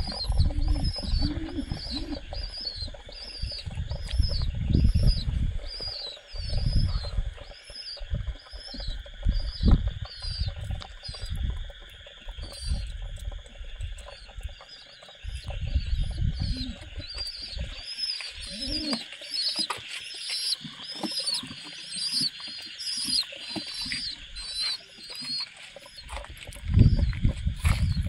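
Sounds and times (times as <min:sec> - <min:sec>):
pigeons scuffling: 0:00.0 - 0:04.6, 0:16.4 - 0:28.0
high insect drone: 0:00.0 - 0:28.0.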